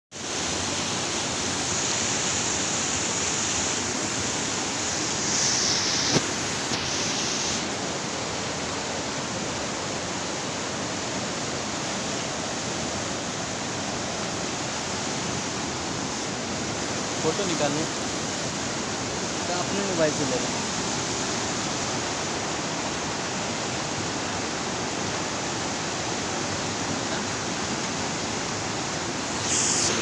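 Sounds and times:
river rushing over rapids: 0:00.2 - 0:30.0.

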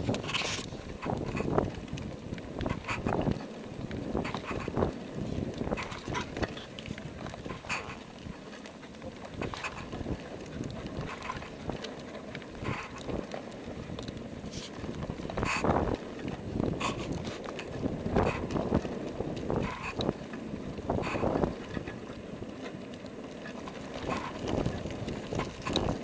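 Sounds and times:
wind noise on microphone: 0:00.0 - 0:08.4, 0:09.3 - 0:11.8, 0:12.4 - 0:22.2, 0:24.0 - 0:26.0.

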